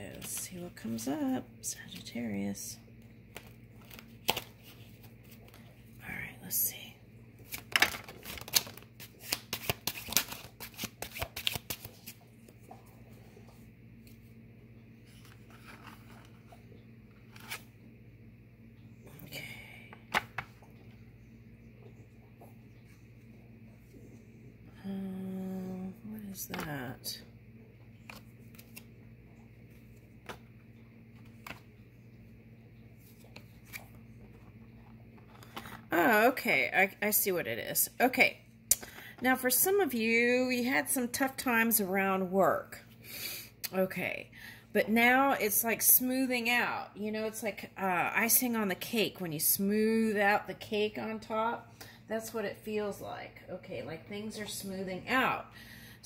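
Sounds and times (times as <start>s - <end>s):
cards being shuffled: 3.3s - 5.6s, 7.4s - 12.2s, 17.3s - 17.7s, 28.1s - 28.9s
low hum: 12.1s - 41.1s.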